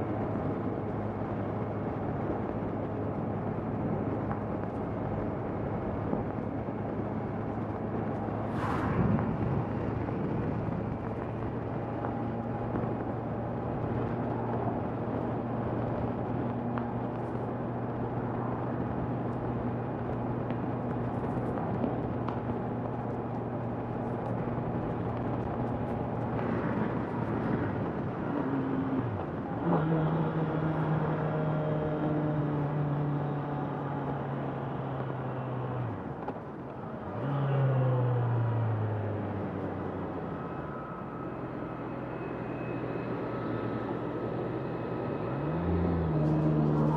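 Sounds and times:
wind and road noise: 0:00.0 - 0:46.9.

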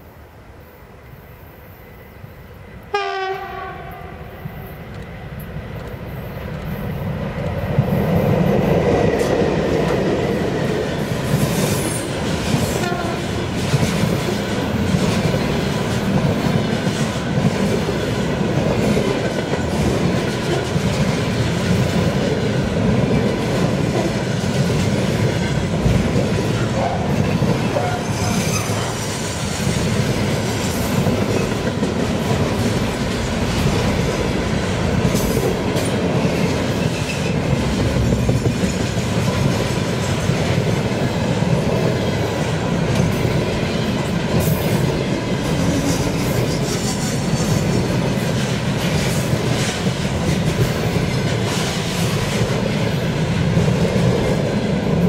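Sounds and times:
freight train rolling past: 0:00.0 - 0:55.0
locomotive horn blast: 0:02.9 - 0:04.2, 0:12.8 - 0:13.3.

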